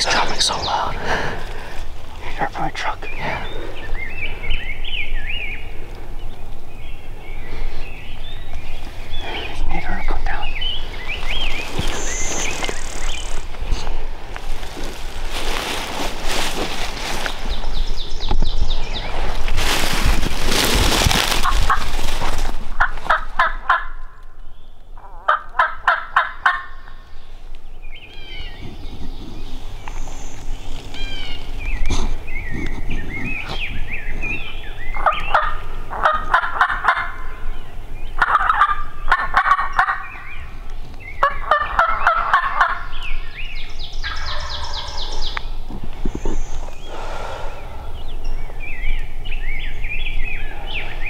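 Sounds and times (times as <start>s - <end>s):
songbirds chirping: 0.0s - 51.0s
turkey gobbling: 21.4s - 22.0s, 22.7s - 24.0s, 25.1s - 26.9s, 35.0s - 37.4s, 38.2s - 40.2s, 41.2s - 43.0s, 44.0s - 45.4s.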